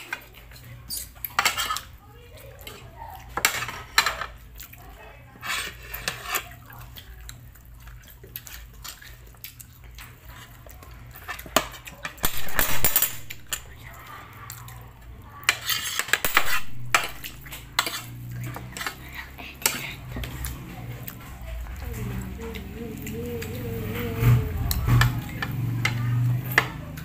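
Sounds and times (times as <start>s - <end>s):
chewing and mouth noises: 4.4s - 5.2s, 5.8s - 12.3s, 13.3s - 15.8s, 17.1s - 27.0s
cutlery clinking on plate: 11.3s - 13.7s.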